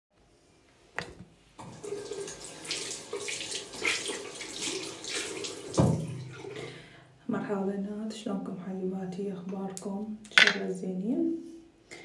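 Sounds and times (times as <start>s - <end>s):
water running from tap into sink: 1.6s - 6.6s.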